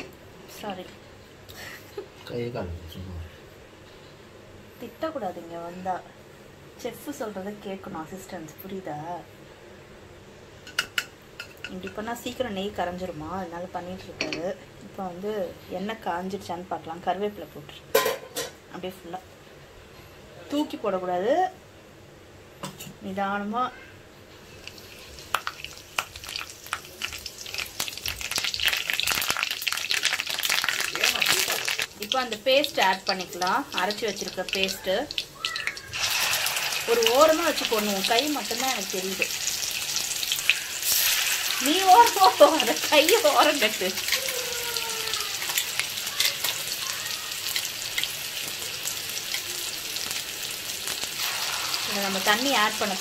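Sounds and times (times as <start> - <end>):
leaves frying in hot oil: 24.4 - 53.0.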